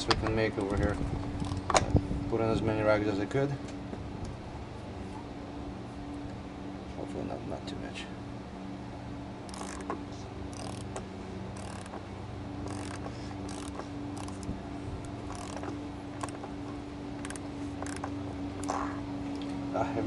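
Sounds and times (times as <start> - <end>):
steady low hum: 0.0 - 20.0
socket ratchet clicking: 9.5 - 9.9, 10.5 - 11.0, 11.6 - 12.0, 12.6 - 14.5, 15.3 - 16.4, 17.2 - 18.1.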